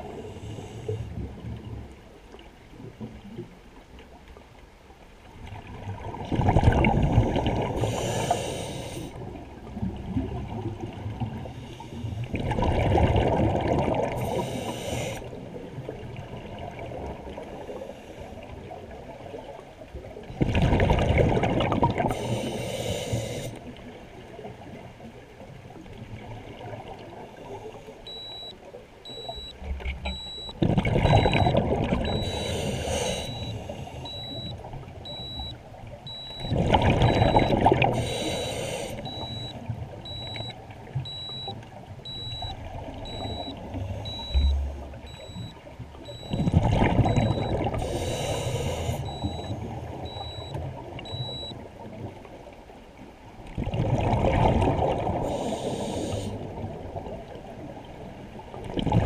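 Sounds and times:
underwater breath bubbling: 6.4 - 9.2, 11.3 - 15.4, 20.4 - 23.7, 30.1 - 35.5, 36.1 - 41.5, 46.1 - 51.5, 53.6 - 56.6
short high electronic beeps: 28.1 - 28.5, 29.1 - 32.5, 33.2 - 36.6, 37.2 - 37.6, 39.1 - 39.5, 40.1 - 40.5, 41.1 - 41.5, 42.1 - 45.5, 46.1 - 46.5, 47.1 - 47.6, 49.0 - 50.5, 51.1 - 51.5.

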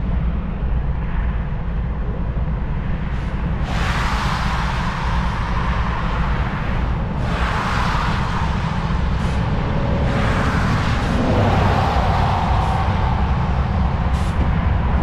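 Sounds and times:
steady low rumble: 0.0 - 15.0
cars passing on highway: 3.4 - 15.0.

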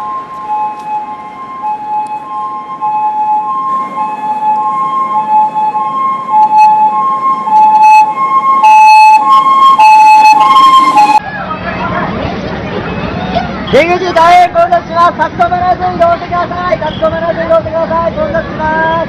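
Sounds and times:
two-tone ambulance siren: 0.0 - 11.2.

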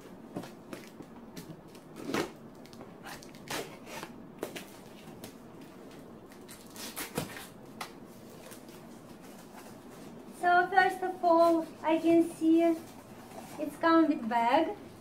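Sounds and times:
blade slitting packing tape: 6.5 - 7.6.

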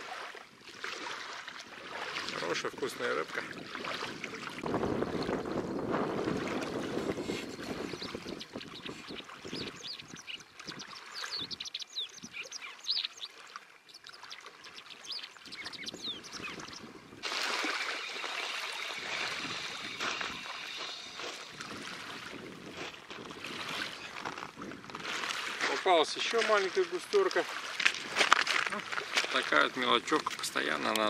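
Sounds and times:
rushing wind and water: 0.0 - 31.0
small waves lapping on shore: 0.0 - 31.0
high bird chirps: 7.8 - 16.9.

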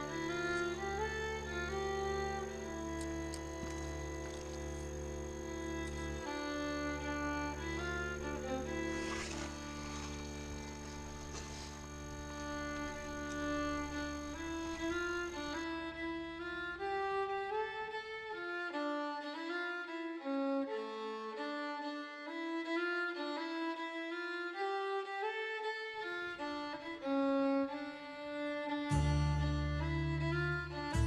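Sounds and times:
deep low note: 0.0 - 16.8
lower strings: 0.0 - 31.0
violin playing slow melody: 0.0 - 31.0.

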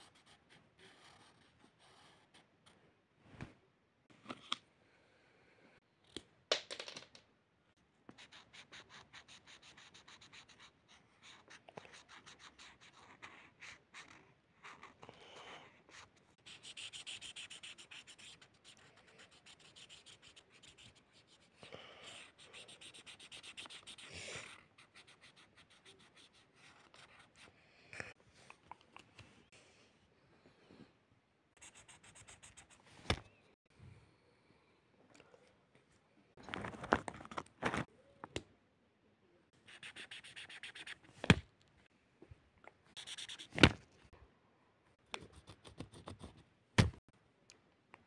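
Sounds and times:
marker scratching on paper: 15.9 - 27.5, 31.6 - 33.2, 39.7 - 41.4, 43.0 - 43.8.

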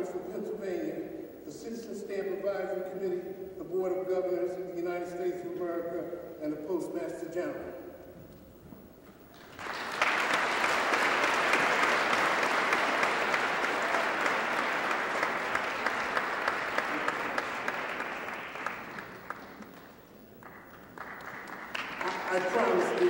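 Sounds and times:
audience applauding: 9.4 - 23.0.

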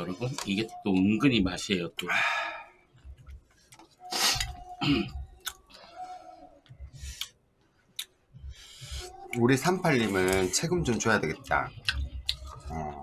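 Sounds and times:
chewing: 11.8 - 12.8.

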